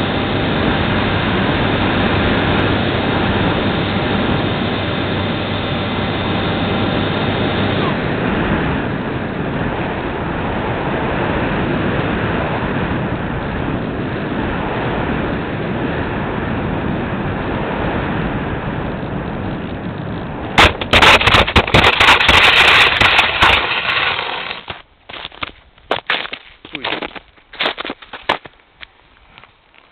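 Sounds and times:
steady rushing air noise: 0:00.0 - 0:25.0
plane scraping across snow: 0:21.2 - 0:24.8
footsteps crunching in snow: 0:23.7 - 0:29.9.

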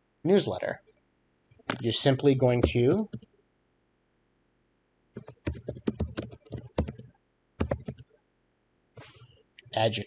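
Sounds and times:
computer keyboard typing: 0:02.6 - 0:03.3, 0:05.2 - 0:08.1.

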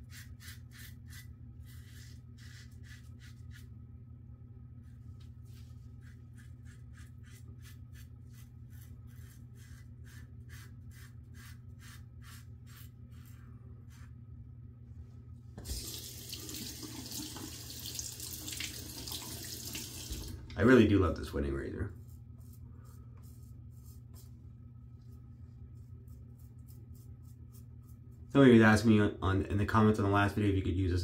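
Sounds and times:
tap water running into sink: 0:15.6 - 0:20.6.

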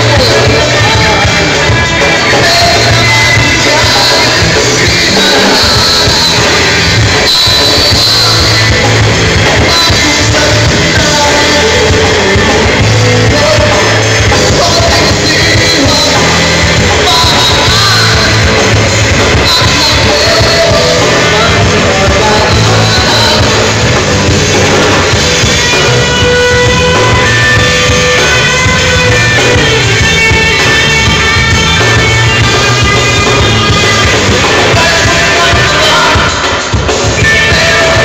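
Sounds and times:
drums: 0:00.0 - 0:38.0
electric guitars: 0:00.0 - 0:38.0
man singing: 0:00.0 - 0:38.0.

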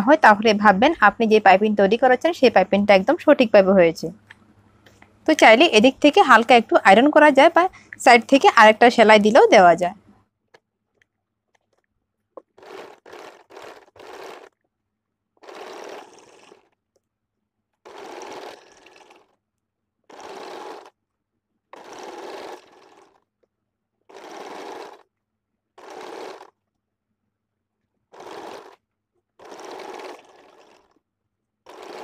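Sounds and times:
sewing machine stitching: 0:10.9 - 0:14.7, 0:15.4 - 0:17.0, 0:17.8 - 0:19.4, 0:20.1 - 0:21.0, 0:21.7 - 0:23.3, 0:24.0 - 0:25.1, 0:25.8 - 0:26.7, 0:28.1 - 0:31.0, 0:31.6 - 0:32.0.

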